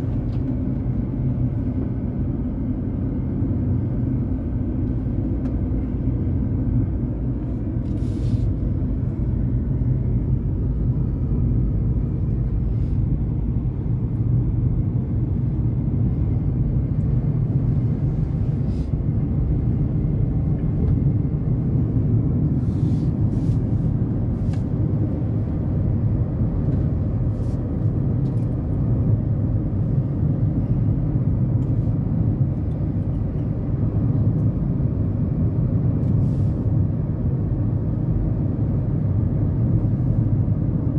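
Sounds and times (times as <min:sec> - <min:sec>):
road and engine rumble in car: 0:00.0 - 0:40.9.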